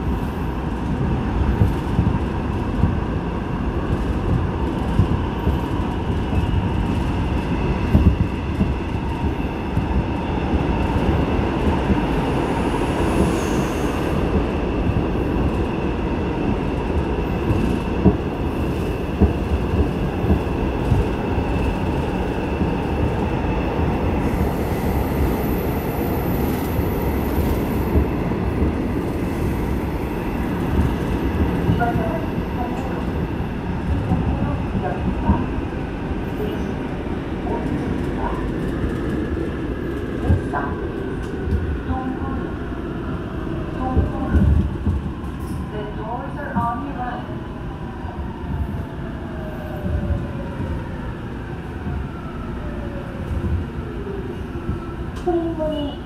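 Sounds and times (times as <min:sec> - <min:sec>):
wheels rumbling on rail: 0:00.0 - 0:56.0.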